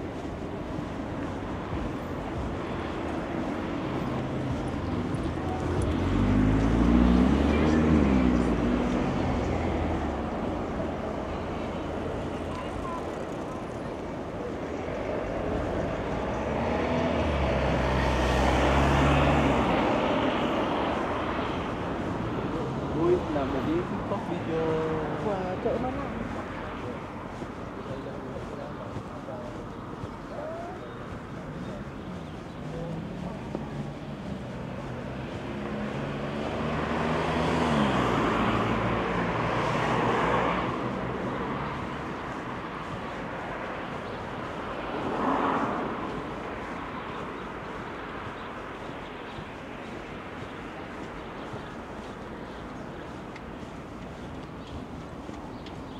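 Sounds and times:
vehicle passing: 0:00.0 - 0:55.9
vehicle driving past: 0:05.7 - 0:10.2.

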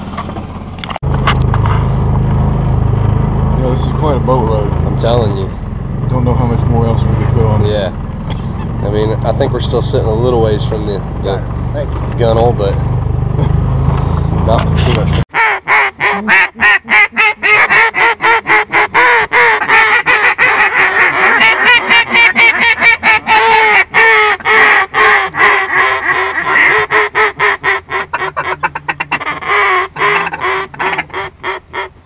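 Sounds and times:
duck call quacks: 0:15.3 - 0:32.0.

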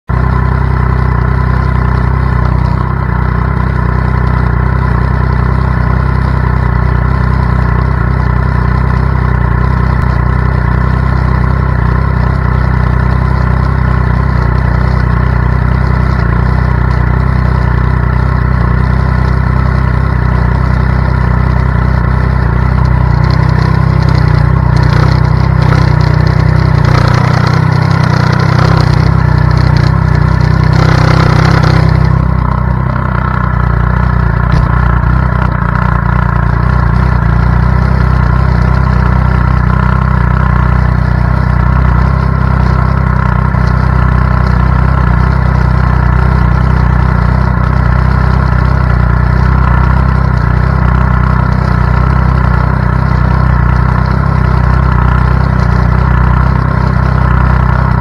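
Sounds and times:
motorcycle engine idling: 0:00.1 - 0:58.0.

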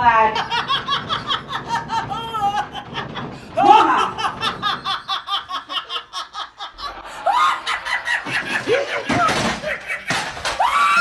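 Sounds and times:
woman laughing heartily: 0:00.4 - 0:10.7.

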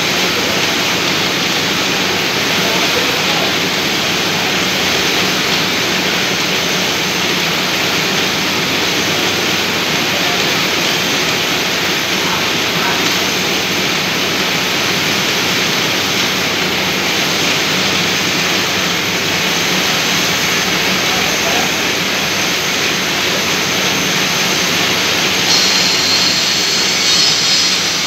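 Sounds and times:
lathe machine whir: 0:00.0 - 0:28.0
high hiss: 0:25.1 - 0:28.0.

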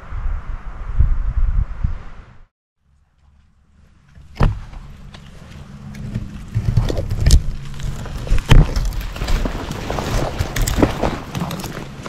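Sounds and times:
wind rumbling on microphone: 0:00.0 - 0:02.5
rustling of brush or clothing: 0:04.9 - 0:12.0.

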